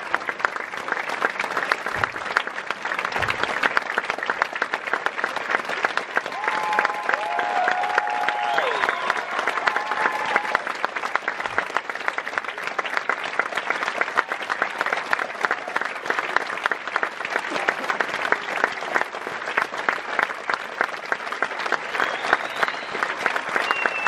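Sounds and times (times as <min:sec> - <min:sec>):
audience applauding: 0:00.0 - 0:24.0.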